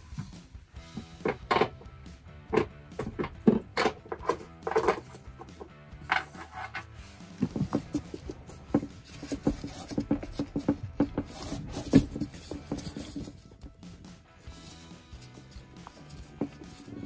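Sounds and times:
knocks and rubbing on plastic: 7.3 - 14.0.

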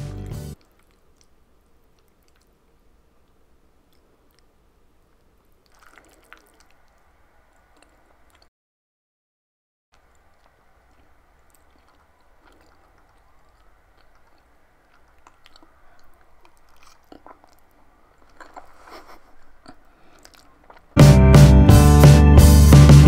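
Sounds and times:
soft wet chewing: 0.2 - 8.5, 10.0 - 21.0.

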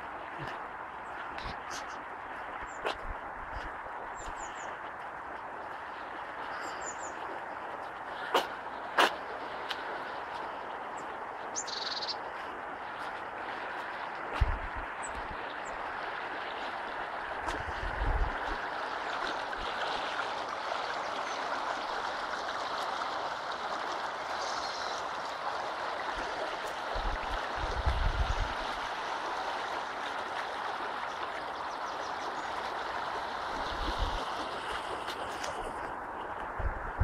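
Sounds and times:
river water rushing: 0.0 - 37.0
wind buffeting microphone: 12.2 - 20.6, 25.2 - 31.8, 32.8 - 37.0.

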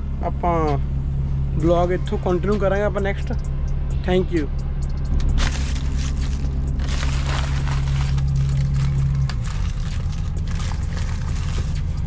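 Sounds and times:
truck engine idling: 0.0 - 12.0
scraping and crinkling handling: 5.4 - 12.0.

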